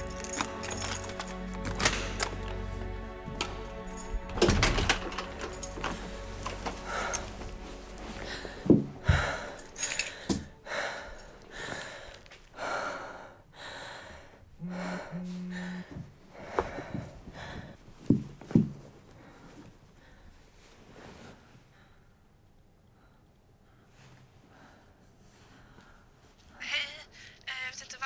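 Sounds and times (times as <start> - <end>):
woman gasping and sobbing: 5.4 - 17.8, 26.7 - 27.5.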